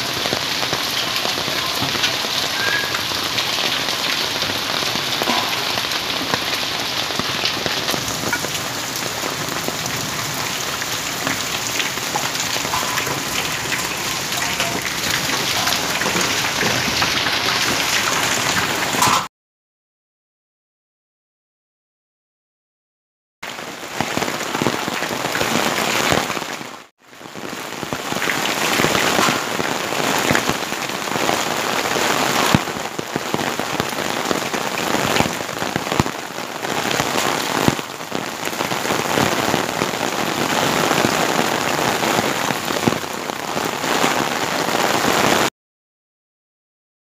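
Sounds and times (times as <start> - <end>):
heavy rain on concrete: 0.0 - 19.3, 23.4 - 45.6
hailstones clicking: 0.2 - 19.2.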